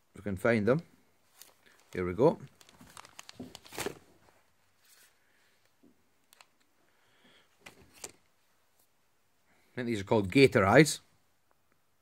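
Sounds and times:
soft rustles and clicks of packs: 1.0 - 9.0.

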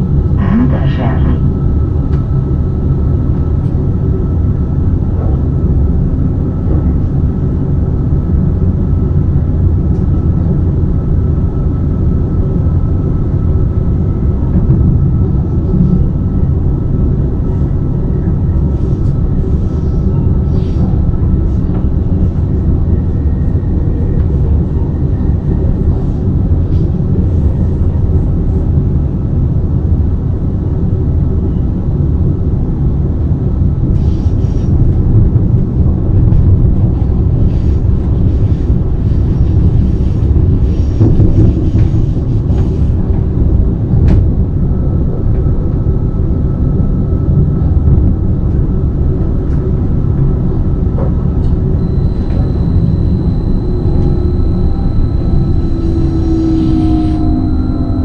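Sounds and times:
train rumbling along track: 0.0 - 58.0
faint high tone: 51.8 - 58.0.

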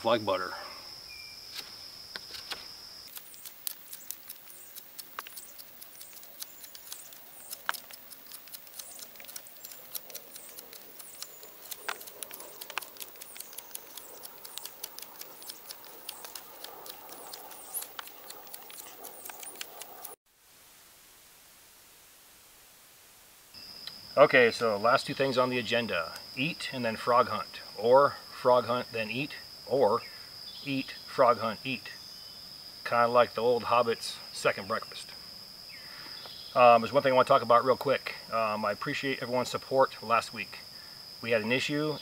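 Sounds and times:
knife slicing and scraping wood: 1.5 - 20.2
knife whittling wood: 1.6 - 20.2.

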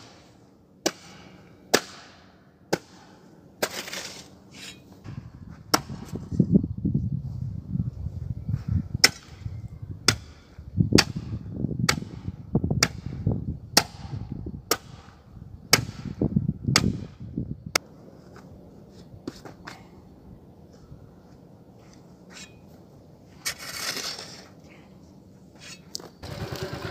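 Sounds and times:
hoe striking soil: 2.7 - 4.9, 23.4 - 24.5
soil scraping on road: 3.6 - 6.3, 21.8 - 26.9.

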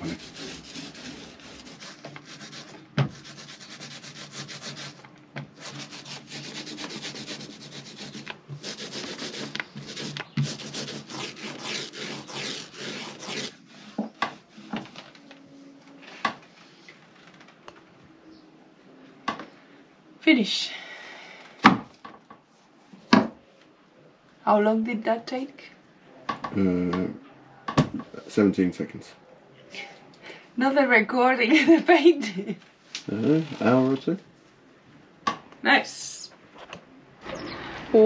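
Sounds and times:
paint roller rubbing: 0.0 - 14.7.

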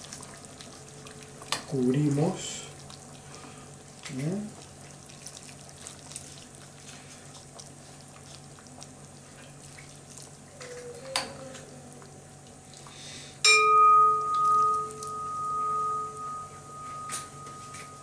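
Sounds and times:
broth pouring and dripping: 0.0 - 10.5
metallic clang of kitchenware: 13.5 - 18.0.

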